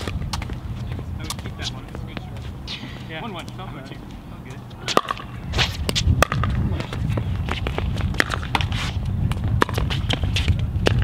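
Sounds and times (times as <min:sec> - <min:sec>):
wind rumble on microphone: 0:00.0 - 0:02.9, 0:03.9 - 0:11.0
footsteps and shoe scuffs: 0:00.0 - 0:04.2, 0:05.5 - 0:06.2.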